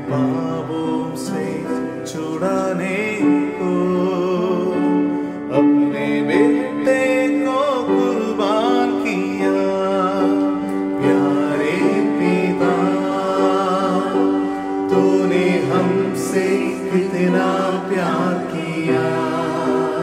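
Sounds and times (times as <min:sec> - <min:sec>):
worship song singing: 0:00.0 - 0:20.0.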